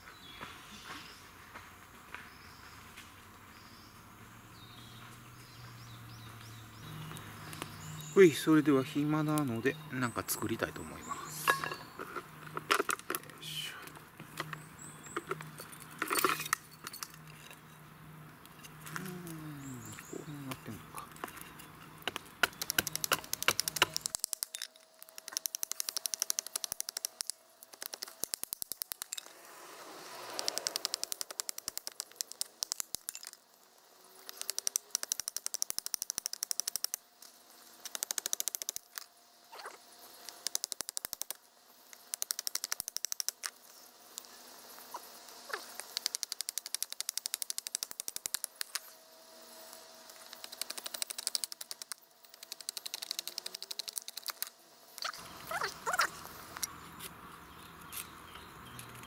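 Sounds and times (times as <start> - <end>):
hatchet chipping wood: 22.0 - 29.2, 30.3 - 33.4, 34.2 - 37.0, 37.8 - 39.1, 40.2 - 41.4, 42.0 - 43.5.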